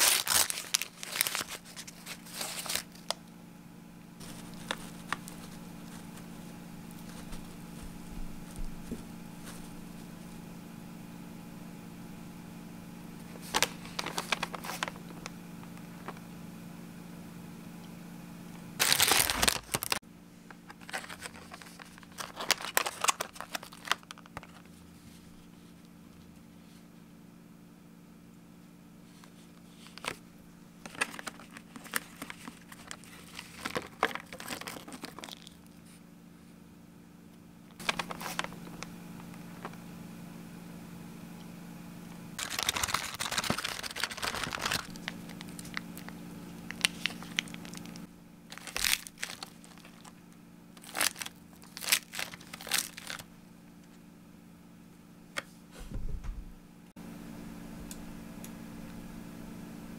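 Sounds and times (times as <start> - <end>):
plastic container crinkling: 0.0 - 3.2, 4.2 - 6.3, 13.4 - 15.4, 18.8 - 20.0, 20.6 - 24.7, 30.9 - 35.7, 37.8 - 39.8, 42.4 - 50.2, 50.8 - 53.3
faint low hum: 0.0 - 59.9.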